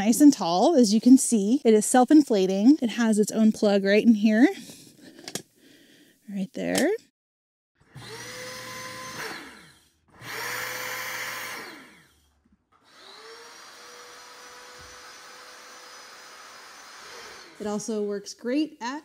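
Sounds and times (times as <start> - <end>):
electric air pump whining: 7.8 - 18.1.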